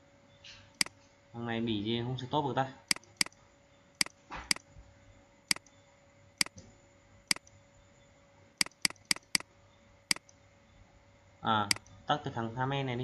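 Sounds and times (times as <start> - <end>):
computer mouse clicking: 2.9 - 3.4, 5.5 - 5.8, 7.3 - 7.6, 8.6 - 9.4, 10.1 - 10.4.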